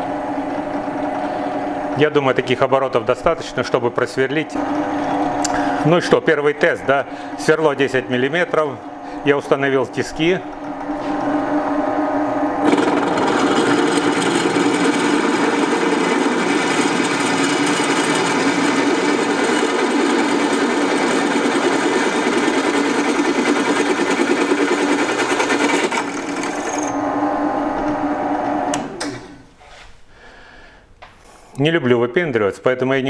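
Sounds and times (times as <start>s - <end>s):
drill press motor hum: 4.5s - 6.3s, 10.2s - 29.5s
drill bit grinding through metal: 12.6s - 27.0s.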